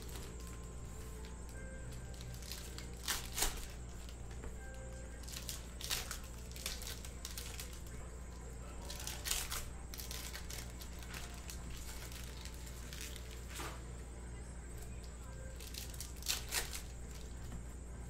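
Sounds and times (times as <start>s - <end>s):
card wrappers tearing and crinkling: 1.2s - 4.2s, 5.2s - 8.0s, 8.8s - 13.8s, 15.5s - 17.4s.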